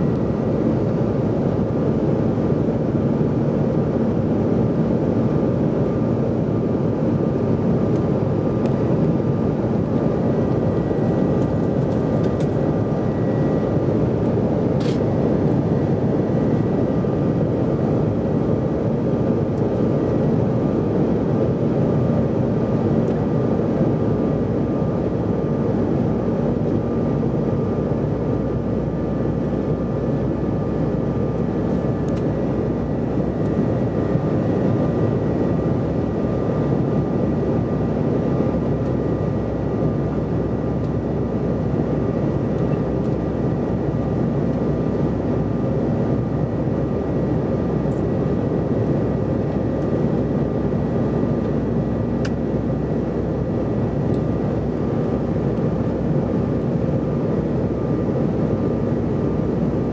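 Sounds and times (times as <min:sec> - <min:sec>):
jet engines droning: 0:00.0 - 0:59.9
faint whine tones: 0:08.6 - 0:17.5.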